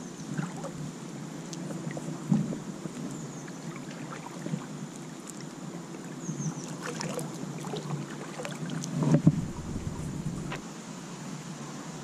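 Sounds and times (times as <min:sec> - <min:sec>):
water lapping against kayak hull: 0:00.3 - 0:10.6
kayak bump: 0:09.0 - 0:10.6.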